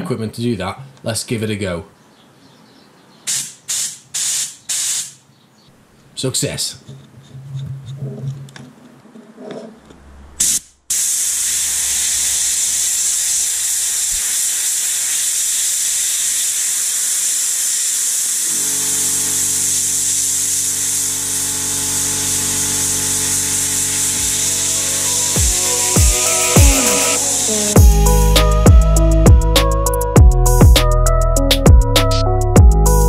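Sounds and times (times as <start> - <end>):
soda blaster hissing: 3.3 - 5.2, 10.4 - 29.8.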